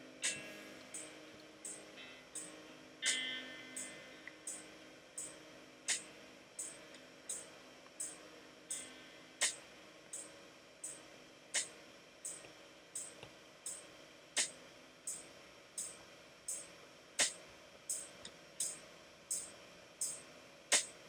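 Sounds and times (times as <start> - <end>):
faint steady hiss: 0.0 - 21.0
soft sharp clicks: 2.4 - 4.6, 17.2 - 20.2.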